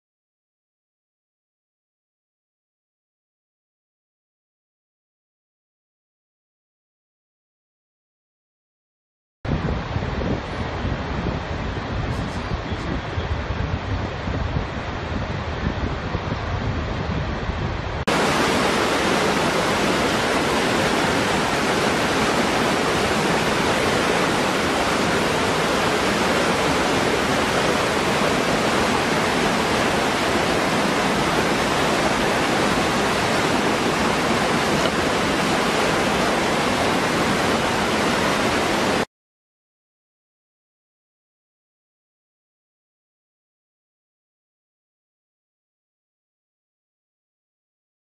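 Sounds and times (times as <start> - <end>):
waterfall splashing over rocks: 18.1 - 39.1.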